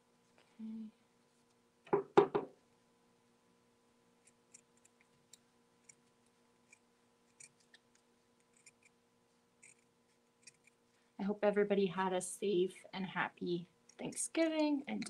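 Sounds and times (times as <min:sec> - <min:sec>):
knock: 0:01.9 - 0:02.5.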